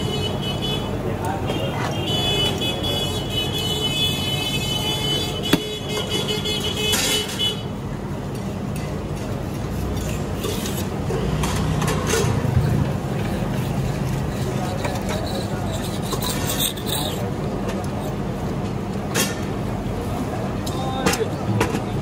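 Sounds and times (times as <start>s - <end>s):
street traffic: 0.0s - 22.0s
sharp knock: 5.5s - 5.8s.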